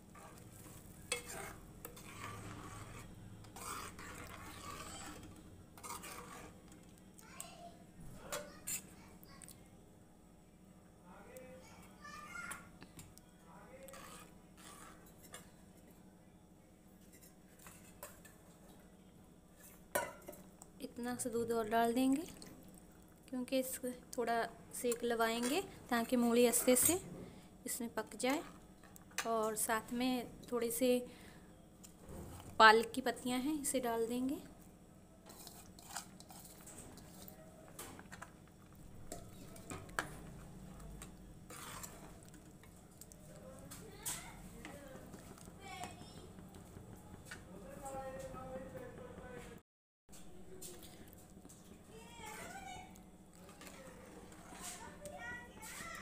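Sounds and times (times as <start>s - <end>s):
stirring thick curry: 0.0s - 7.0s, 13.8s - 16.0s, 17.0s - 18.8s, 35.2s - 48.1s, 52.3s - 56.0s.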